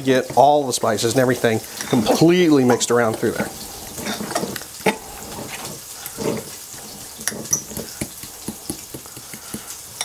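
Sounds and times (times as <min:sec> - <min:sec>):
wet squishing of mashing: 0:00.0 - 0:10.0
utensil tapping glass bowl: 0:07.2 - 0:10.0.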